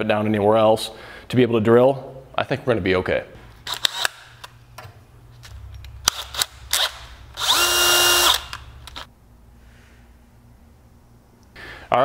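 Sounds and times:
cordless drill motor whine: 6.7s - 8.6s.

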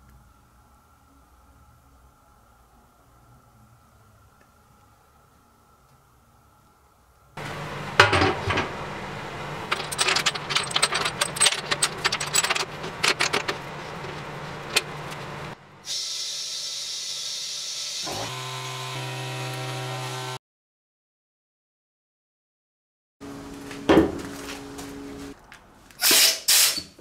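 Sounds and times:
steady low hum: 0.0s - 15.9s
small hard objects clattering: 9.6s - 15.6s.

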